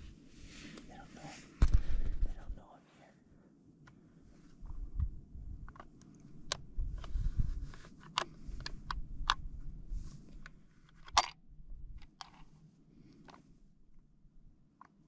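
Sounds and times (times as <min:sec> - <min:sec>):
low rumble: 0:03.6 - 0:12.1.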